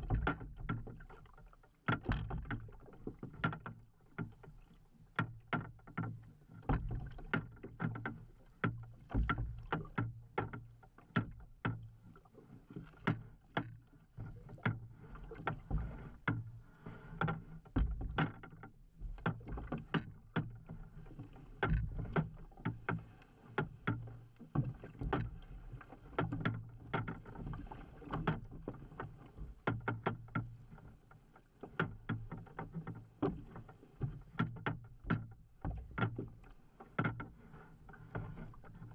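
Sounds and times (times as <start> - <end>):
waves slapping against kayak hull: 0.0 - 38.9.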